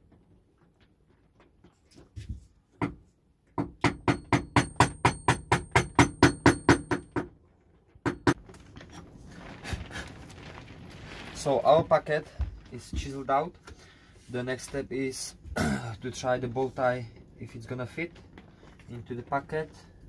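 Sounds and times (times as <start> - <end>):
wooden mallet striking chisel: 2.8 - 3.0, 3.6 - 7.3, 8.0 - 8.4.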